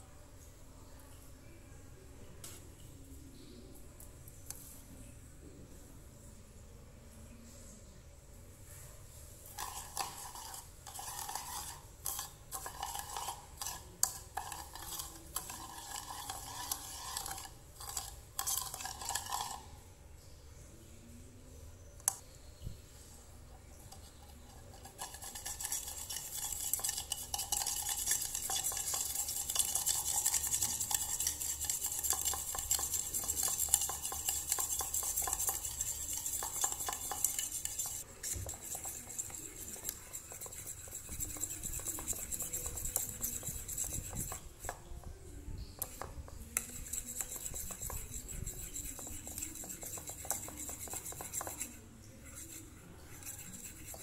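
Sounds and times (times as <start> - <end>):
fork whisking in a bowl: 9.4 - 19.8, 23.6 - 54.0.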